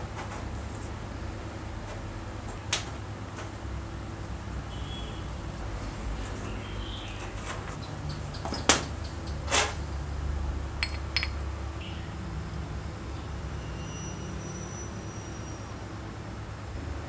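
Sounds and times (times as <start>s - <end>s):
light metallic clinks: 10.8s - 11.4s
tool parts knocking on workbench: 10.8s - 11.4s.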